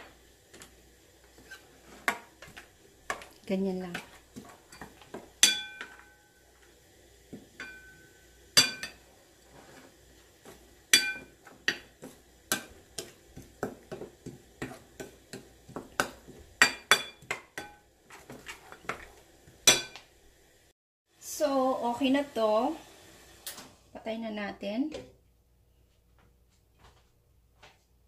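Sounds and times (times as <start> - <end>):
spatula scraping sauce in bowl: 0.6 - 6.0, 11.2 - 16.5, 17.6 - 19.2
spatula clinking against bowl: 3.9 - 6.2, 7.6 - 9.0, 10.9 - 17.8.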